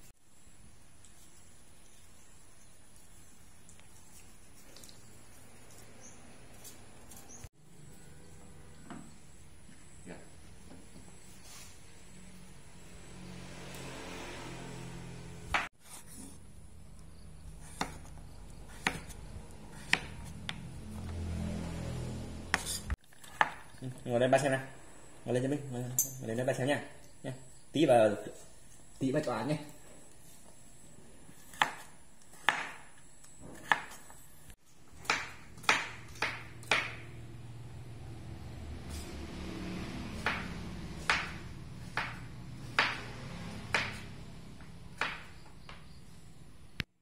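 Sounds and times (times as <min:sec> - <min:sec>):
knife chopping on wooden board: 0:17.6 - 0:21.4, 0:22.5 - 0:23.7, 0:31.3 - 0:34.1, 0:34.9 - 0:37.1, 0:40.0 - 0:45.8.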